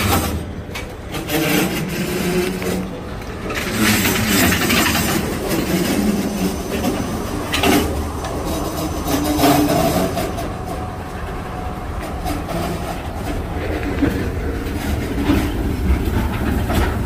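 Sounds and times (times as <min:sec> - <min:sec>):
train wheels rumbling and clattering: 0:00.0 - 0:17.0.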